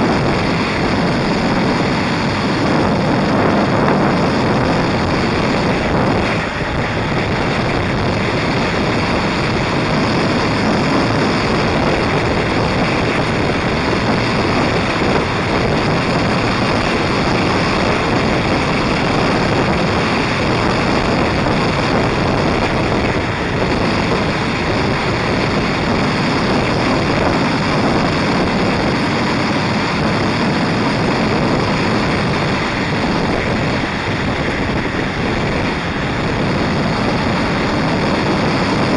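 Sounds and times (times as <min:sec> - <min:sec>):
motorcycle engine: 0:00.0 - 0:38.9
road noise: 0:00.0 - 0:38.9
wind rushing over microphone: 0:00.0 - 0:38.9.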